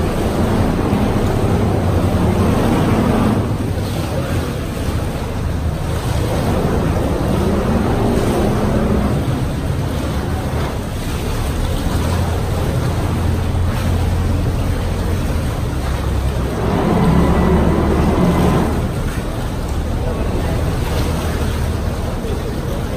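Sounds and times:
boat engine running: 0.0 - 22.9.

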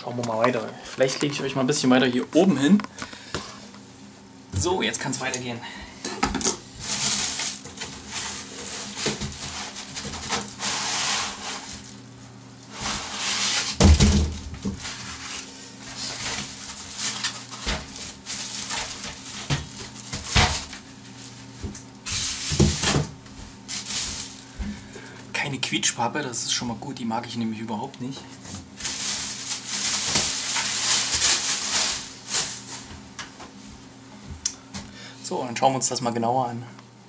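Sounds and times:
plastic and foam packaging rustling: 6.7 - 12.0, 12.7 - 25.0, 28.3 - 33.0.

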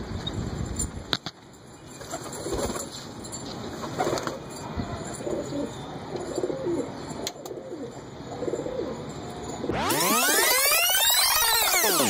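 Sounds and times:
pigeons cooing: 5.2 - 9.1.

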